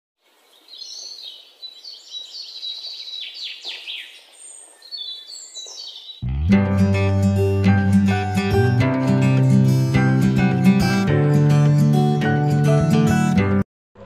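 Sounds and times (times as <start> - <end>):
robin singing: 0.3 - 6.4
acoustic guitar music: 6.2 - 14.0.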